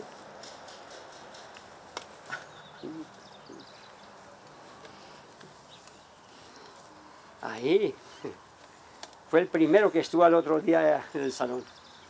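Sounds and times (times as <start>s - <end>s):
faint bird chirps: 2.4s - 4.2s.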